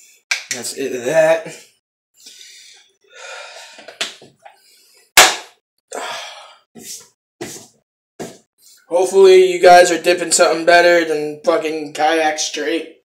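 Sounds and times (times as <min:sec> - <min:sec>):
loud sharp smack: 0:05.2 - 0:05.6.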